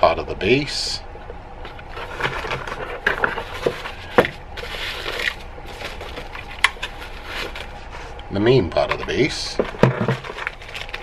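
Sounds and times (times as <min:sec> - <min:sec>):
plastic wrapping rustling: 0:01.6 - 0:08.2, 0:08.9 - 0:11.0
plastic parts clattering on packing: 0:01.7 - 0:07.8, 0:08.7 - 0:11.0.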